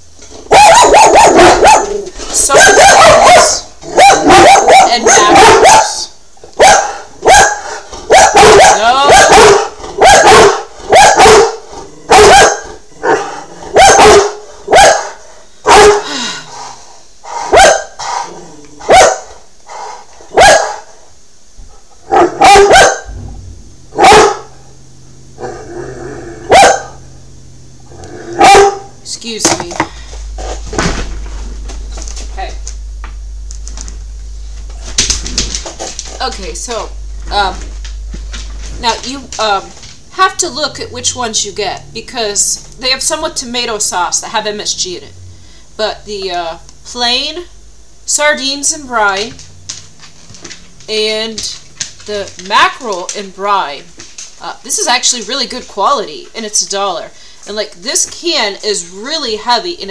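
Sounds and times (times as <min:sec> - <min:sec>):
dog barking: 0:00.5 - 0:16.1, 0:17.4 - 0:19.4, 0:20.3 - 0:20.9, 0:22.1 - 0:23.2, 0:24.0 - 0:24.6, 0:26.5 - 0:27.0, 0:28.4 - 0:28.9.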